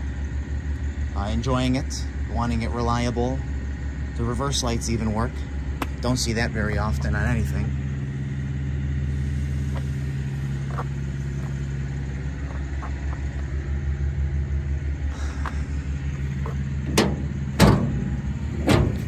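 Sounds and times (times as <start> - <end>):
engine idling: 0.0 - 19.0
sharp knocks: 16.9 - 19.0.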